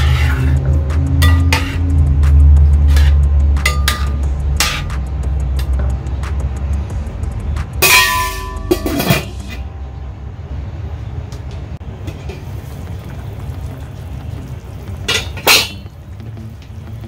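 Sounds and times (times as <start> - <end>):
steel lid clanging onto pot: 7.8 - 9.6, 15.1 - 15.9.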